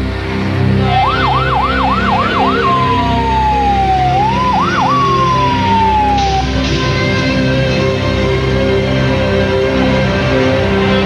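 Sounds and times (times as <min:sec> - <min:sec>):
background music: 0:00.0 - 0:11.0
police car siren: 0:00.8 - 0:06.8.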